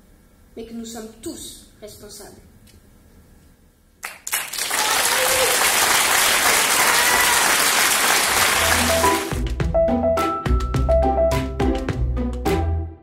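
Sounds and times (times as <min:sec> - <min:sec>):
audience applauding: 0:04.0 - 0:09.6
music with drums and bass: 0:09.3 - 0:12.8.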